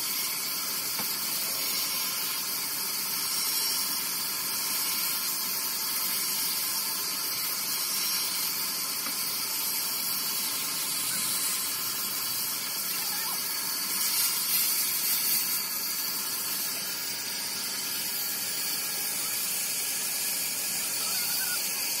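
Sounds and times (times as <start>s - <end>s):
band saw cutting wood: 7.5s - 22.0s.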